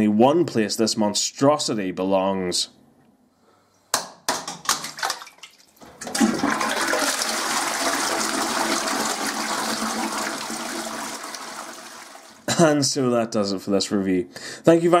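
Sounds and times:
toilet flushing: 4.9 - 12.5.

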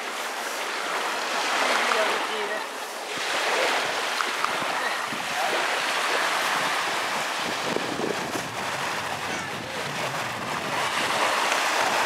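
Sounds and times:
surf washing on shore: 0.0 - 12.0
wind on microphone: 3.1 - 12.0.

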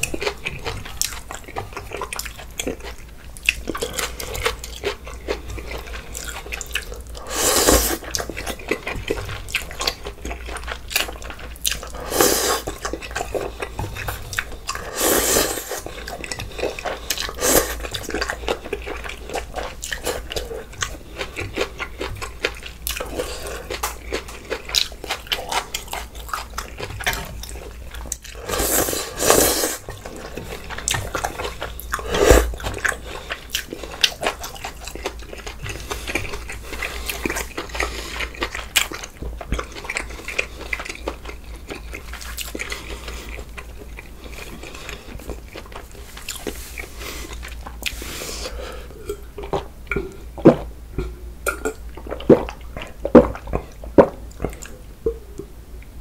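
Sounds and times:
wet chewing and smacking: 0.0 - 14.9, 15.6 - 28.4, 29.3 - 55.4
slurping: 6.2 - 8.2, 11.7 - 20.5, 28.3 - 34.8.

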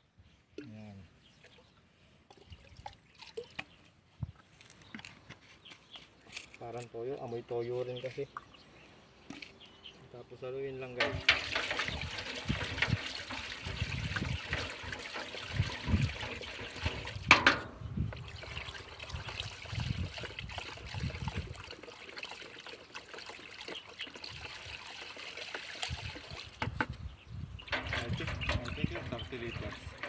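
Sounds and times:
liquid sloshing and trickling: 1.4 - 5.1, 11.0 - 30.0.

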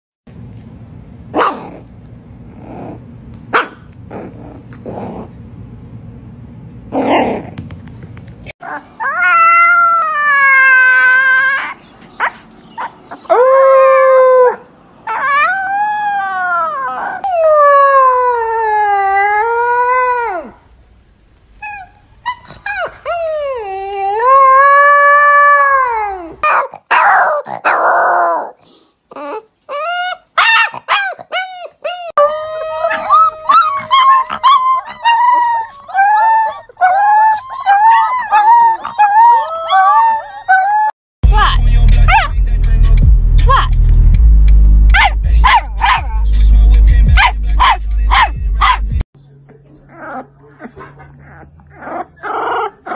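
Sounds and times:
puppy barking: 1.3 - 1.8, 3.5 - 3.9, 26.4 - 28.0, 30.4 - 31.3, 41.4 - 42.4, 44.9 - 46.4, 47.2 - 49.0, 50.1 - 52.9
puppy hoarse yowling barks: 1.3 - 1.9, 3.5 - 3.9, 8.6 - 18.1, 26.4 - 28.6, 29.7 - 40.7, 42.0 - 42.4, 44.9 - 46.5, 47.2 - 49.0
puppy yipping and howling: 8.6 - 20.6, 21.6 - 41.0, 42.1 - 42.3, 44.9 - 46.4, 47.2 - 48.9, 49.9 - 52.9.

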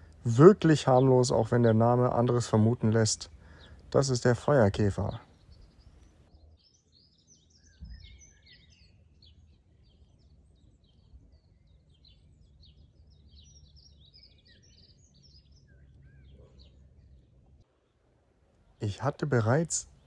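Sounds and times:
birds chirping and twittering: 0.0 - 20.0.

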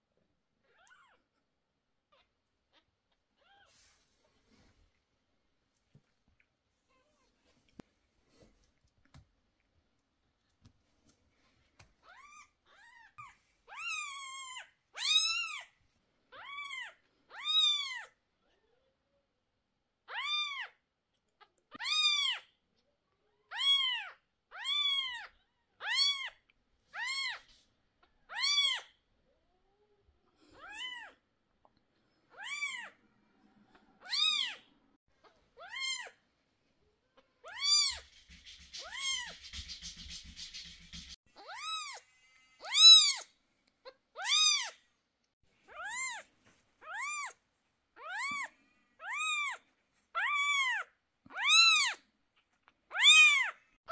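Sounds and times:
scratchy rustling: 37.8 - 41.2.

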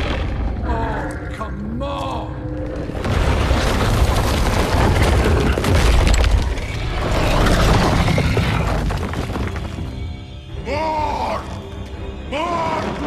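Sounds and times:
crackling debris: 0.0 - 1.4, 2.5 - 10.4
deep rumbling and booming: 0.0 - 1.5, 2.3 - 10.0
orchestral music: 9.2 - 13.0.

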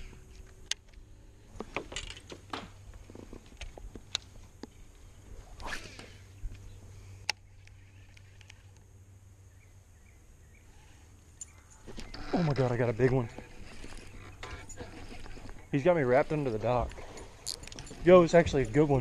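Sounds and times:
steady low hum: 0.0 - 19.0
fishing reel rustles and clicks: 11.4 - 19.0.

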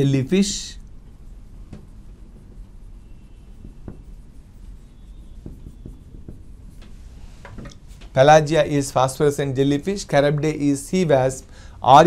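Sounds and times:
marker scratching on whiteboard: 0.0 - 11.2
marker tip taps: 3.6 - 4.2, 5.4 - 6.6.

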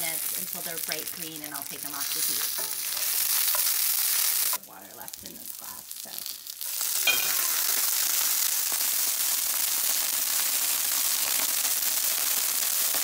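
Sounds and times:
sizzle and hiss of steam: 0.0 - 13.0
water splashing into hot pan: 6.6 - 13.0.

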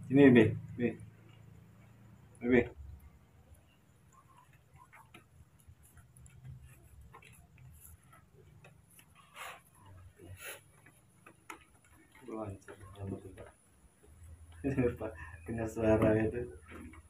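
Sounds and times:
faint ticks and light clicks: 0.5 - 17.0.

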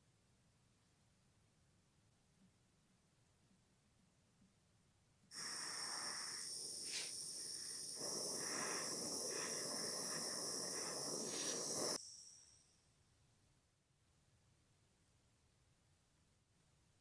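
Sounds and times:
hot-air gun blowing with whine: 5.3 - 12.0.

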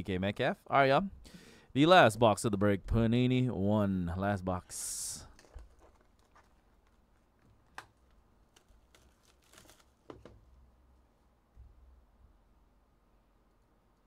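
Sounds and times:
plastic wrapper crinkling: 5.2 - 10.4.

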